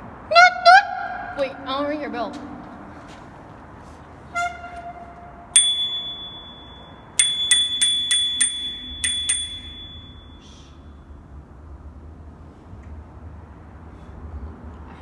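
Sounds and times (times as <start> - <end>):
bicycle bell ringing: 5.6 - 10.7.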